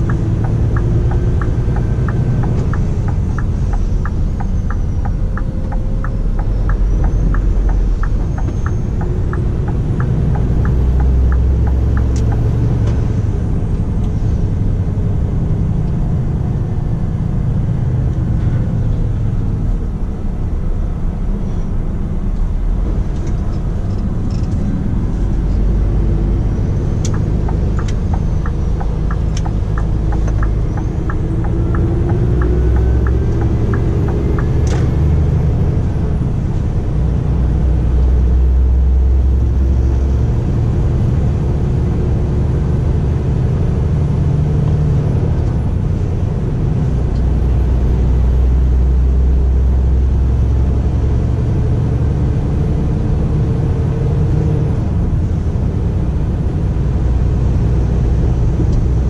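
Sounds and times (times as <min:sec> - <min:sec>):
light regular ticking: 0:00.0 - 0:13.2, 0:23.1 - 0:35.7
road noise: 0:00.0 - 0:59.0
truck diesel engine running: 0:00.0 - 0:59.0.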